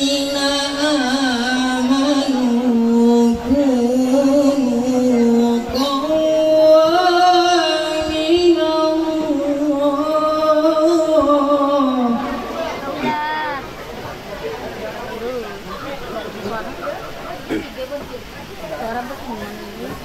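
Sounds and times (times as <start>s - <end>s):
man chanting recitation: 0.0s - 12.6s.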